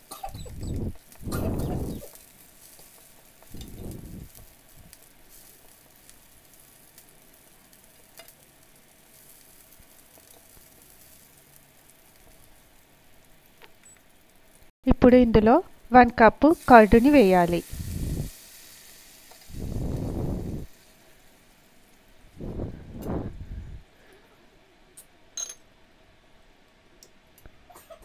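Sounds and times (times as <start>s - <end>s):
food sizzling in oil: 0.0s - 14.7s, 16.4s - 22.3s.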